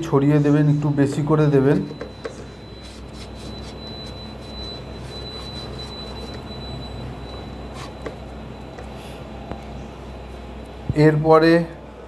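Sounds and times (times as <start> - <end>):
thin high whine: 0.0 - 11.2
steady low hum: 0.0 - 12.0
hand rubbing powder on wood: 2.8 - 6.5.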